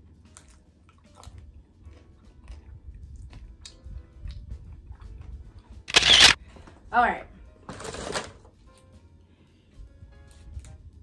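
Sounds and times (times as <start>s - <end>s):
person chewing crunchy chips: 5.9s - 6.4s.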